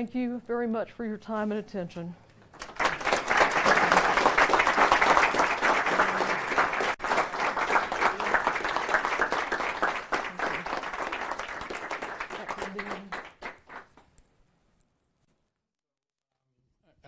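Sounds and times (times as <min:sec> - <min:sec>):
audience applauding: 0:02.5 - 0:14.1.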